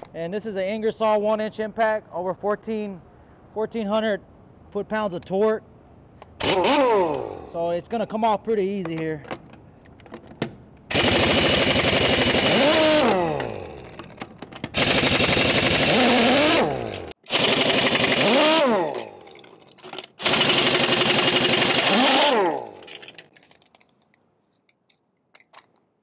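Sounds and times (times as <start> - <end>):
pneumatic impact wrench hammering: 6.3 - 7.5, 10.4 - 23.3.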